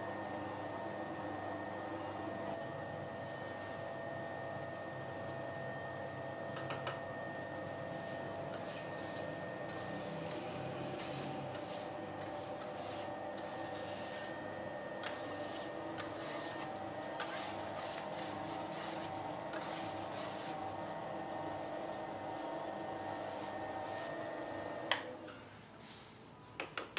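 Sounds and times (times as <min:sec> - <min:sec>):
rubbing and scraping strokes: 0:08.5 - 0:14.4, 0:15.0 - 0:20.6.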